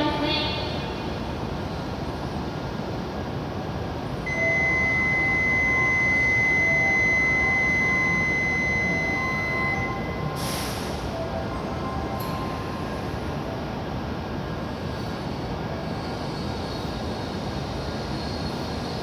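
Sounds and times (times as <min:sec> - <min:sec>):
platform background hum: 0:00.0 - 0:16.4
high electronic warning tone: 0:04.3 - 0:13.0.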